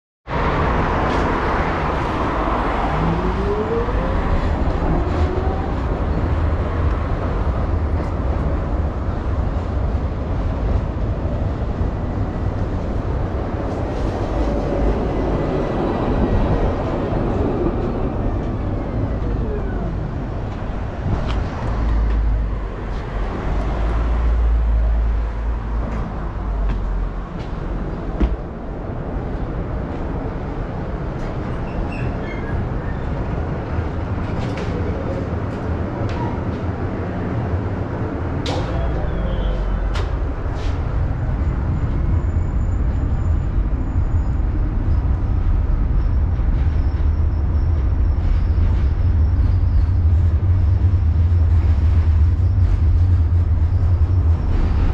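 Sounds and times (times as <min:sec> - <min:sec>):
heavy low rumble: 0:00.3 - 0:31.2, 0:33.2 - 0:54.9
street traffic: 0:00.3 - 0:54.9
tram wheel tones: 0:00.9 - 0:54.9.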